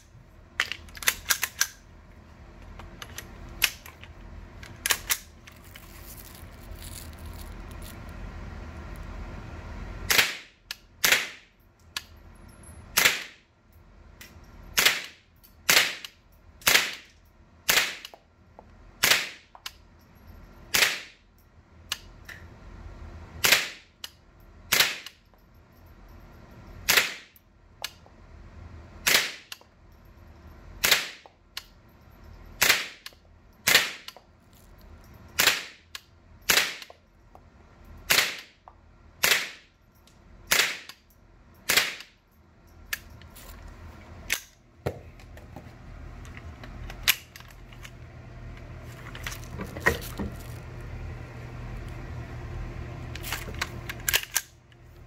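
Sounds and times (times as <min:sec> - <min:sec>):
rifle shots: 0:10.1 - 0:11.4, 0:13.0 - 0:13.4, 0:14.8 - 0:16.0, 0:16.6 - 0:17.0, 0:17.7 - 0:18.0, 0:26.9 - 0:27.3, 0:32.6 - 0:33.0, 0:33.7 - 0:34.1, 0:40.5 - 0:40.9.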